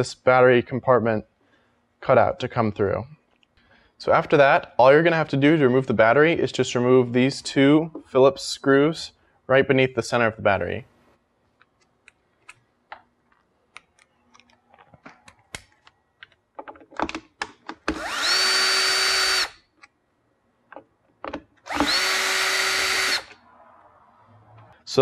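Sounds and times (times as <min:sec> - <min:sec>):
drill motor spinning: 0:17.9 - 0:19.6, 0:21.6 - 0:23.4.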